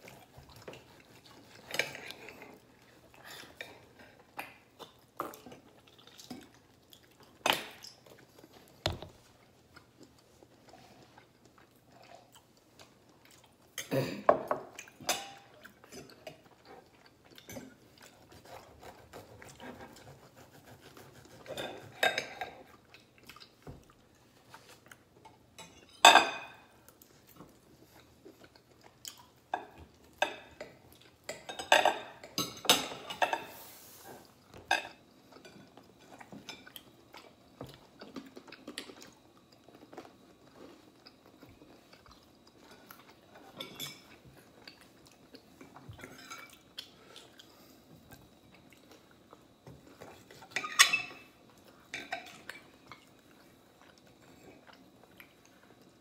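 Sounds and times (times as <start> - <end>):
cutlery clinking on plates: 31.3 - 33.6, 50.4 - 51.3
cutlery clatter: 50.5 - 51.3.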